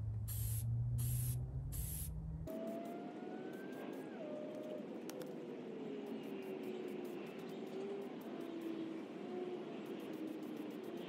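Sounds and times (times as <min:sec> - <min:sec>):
low steady hum: 0:00.0 - 0:02.6
aerosol can spraying: 0:00.3 - 0:02.1
rushing noise with falling whine: 0:00.3 - 0:11.0.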